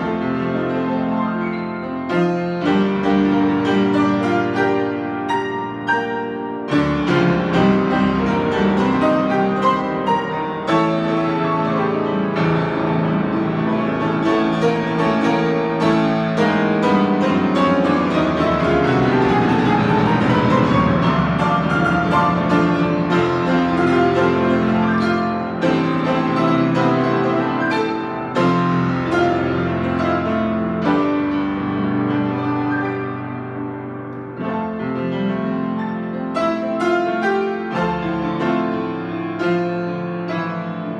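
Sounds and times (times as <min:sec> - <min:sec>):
grand piano playing: 0:00.0 - 0:40.9.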